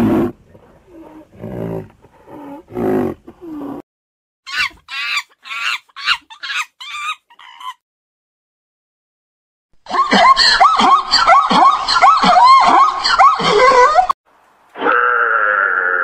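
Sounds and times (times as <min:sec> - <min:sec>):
monkey high-pitched calls: 0:04.5 - 0:07.8.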